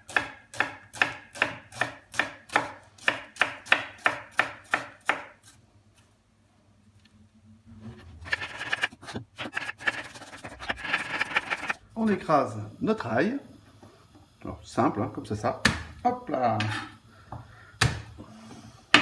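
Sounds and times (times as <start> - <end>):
knife slicing onion on wooden board: 0.0 - 5.6, 8.2 - 11.8
scraping and knocks on cutting board: 7.8 - 11.8, 16.6 - 17.0.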